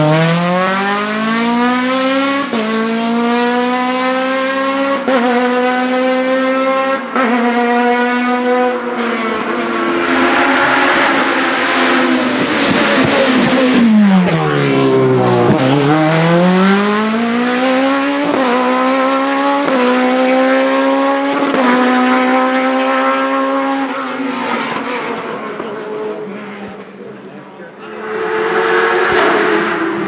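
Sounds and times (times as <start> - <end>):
race car engine passing: 0.0 - 30.0.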